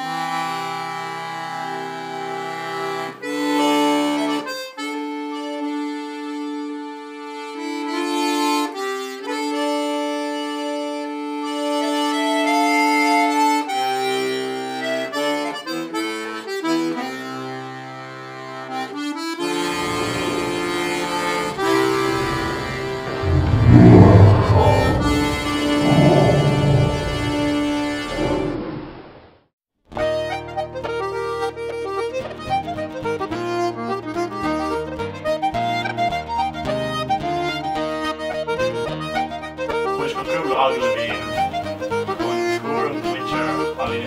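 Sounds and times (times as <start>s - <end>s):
button accordion playing: 0.0s - 23.2s, 30.1s - 44.0s
low rumble: 22.4s - 29.0s.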